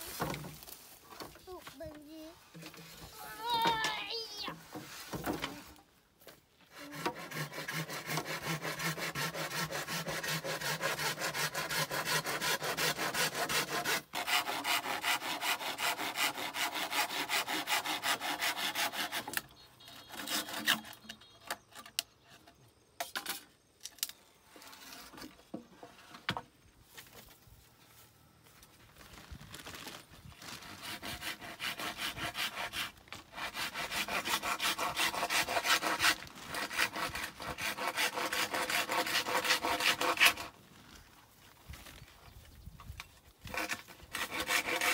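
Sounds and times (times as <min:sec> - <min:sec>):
knocks and rustles: 0:00.0 - 0:03.9, 0:04.6 - 0:05.7
hand saw cutting bamboo: 0:06.6 - 0:22.0, 0:30.5 - 0:40.6, 0:43.4 - 0:44.9.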